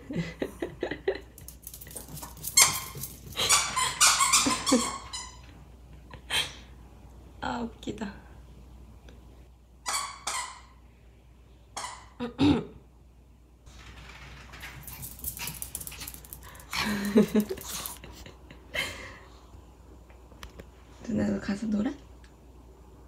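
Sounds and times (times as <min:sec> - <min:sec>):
paws pattering on floor: 0:01.4 - 0:03.6, 0:13.7 - 0:18.1.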